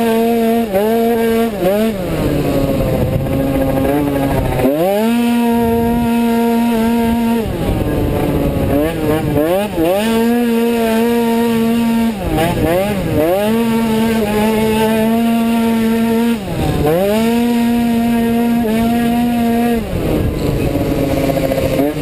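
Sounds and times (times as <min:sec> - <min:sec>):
scooter engine at high revs: 0:00.0 - 0:22.0
wind noise on microphone: 0:01.1 - 0:22.0.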